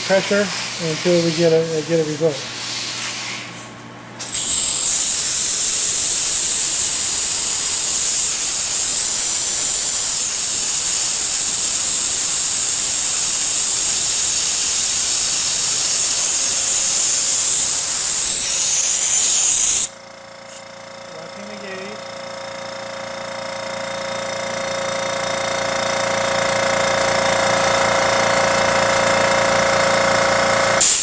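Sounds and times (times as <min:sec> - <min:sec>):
compressed air hissing: 0:04.2 - 0:20.7, 0:30.8 - 0:31.0.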